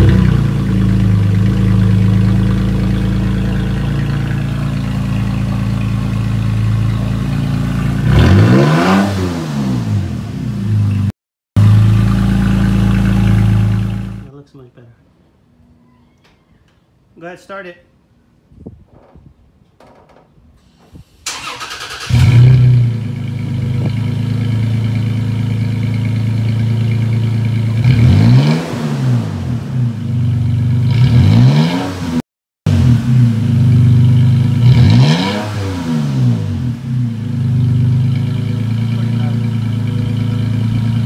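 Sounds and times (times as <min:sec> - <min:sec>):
truck engine starting and idling: 0:00.0 - 0:09.6, 0:19.8 - 0:27.8, 0:36.3 - 0:41.0
engine revving: 0:00.0 - 0:14.3, 0:21.3 - 0:30.0, 0:30.8 - 0:41.0.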